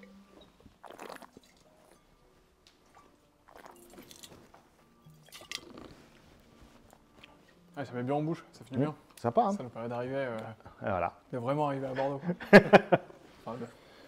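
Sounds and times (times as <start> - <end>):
wet slurping of wine: 0.8 - 2.0, 3.5 - 4.2.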